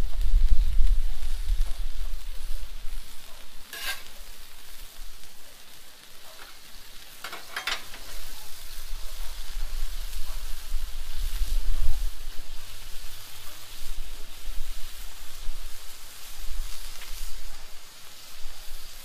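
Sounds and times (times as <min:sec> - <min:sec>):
meat and vegetables sizzling on a griddle: 0:00.0 - 0:19.0
metal spatulas scraping a steel plate: 0:03.7 - 0:04.3, 0:06.3 - 0:06.6, 0:07.2 - 0:08.3.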